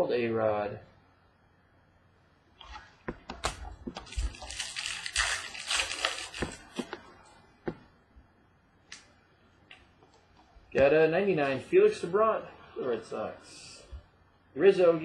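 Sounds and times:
cards rustling: 0:02.7 - 0:07.1.

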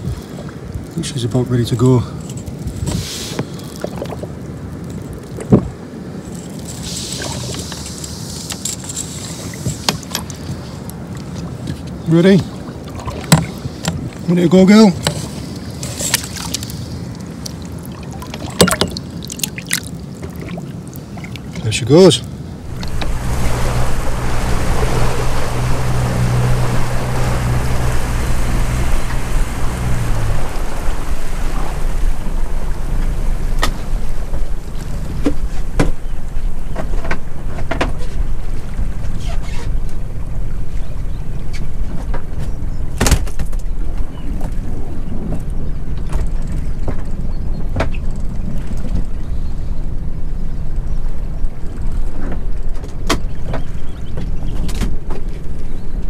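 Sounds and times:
wind on microphone: 0:00.0 - 0:01.0, 0:02.3 - 0:14.3, 0:22.5 - 0:56.0
water splashing against a boat: 0:00.0 - 0:56.0
outboard motor running: 0:22.6 - 0:42.8.

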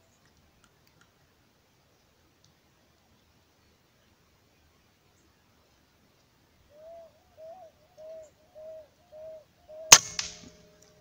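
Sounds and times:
rifle shot: 0:09.9 - 0:10.8
smaller crack: 0:09.9 - 0:10.9.

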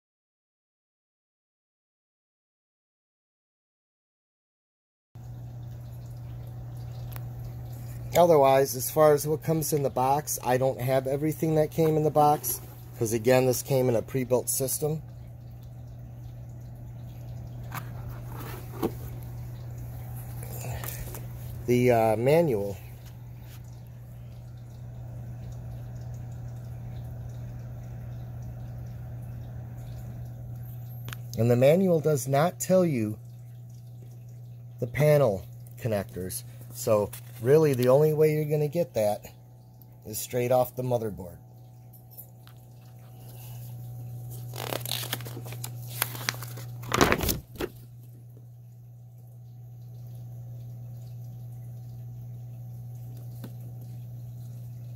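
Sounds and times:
steady low hum: 0:05.2 - 0:54.9
paper rustling and sliding: 0:17.7 - 0:19.2, 0:44.4 - 0:47.7.

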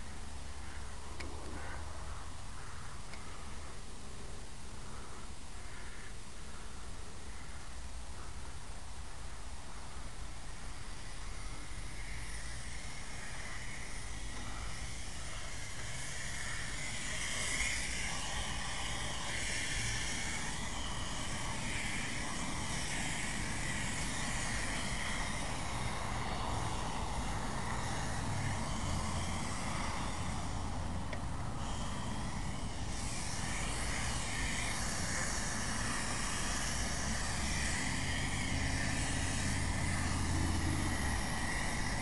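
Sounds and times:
steam cleaner hissing: 0:10.5 - 0:42.0.

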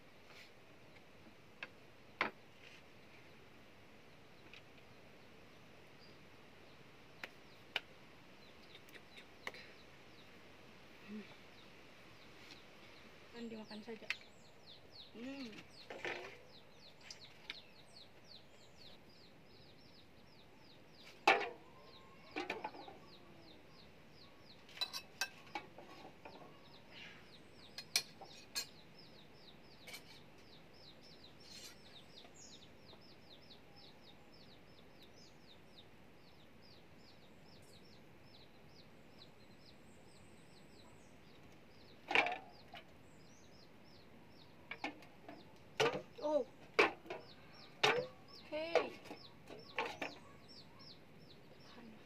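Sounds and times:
chickens clucking: 0:44.4 - 0:51.5.

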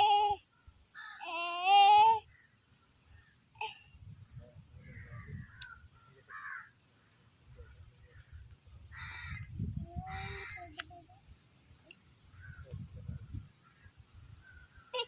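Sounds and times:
crow cawing: 0:01.0 - 0:01.2, 0:05.6 - 0:06.8, 0:08.9 - 0:09.5.

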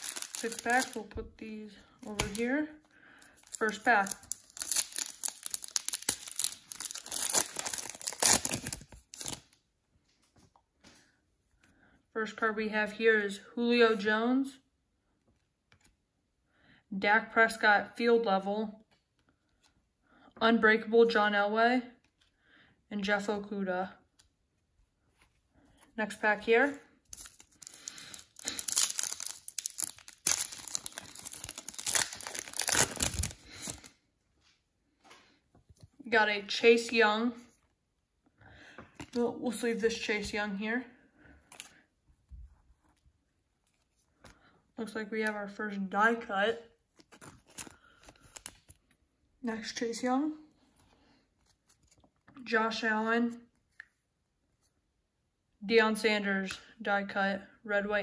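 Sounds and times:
foil pack tearing and crinkling: 0:00.0 - 0:01.0, 0:03.4 - 0:09.4, 0:27.1 - 0:33.9.

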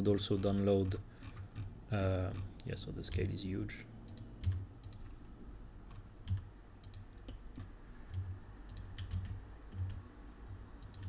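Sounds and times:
mouse and keyboard clicks: 0:05.9 - 0:10.0, 0:10.8 - 0:11.0.

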